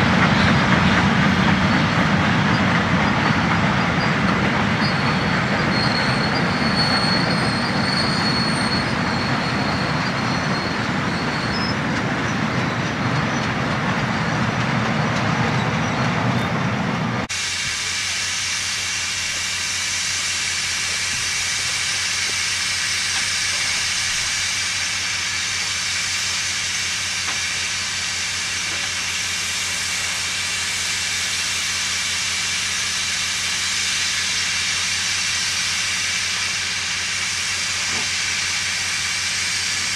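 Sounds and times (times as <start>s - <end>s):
steam locomotive hissing: 0.0s - 39.9s
train wheels rumbling on rail: 0.0s - 39.9s
high wheel squeal: 0.3s - 16.7s.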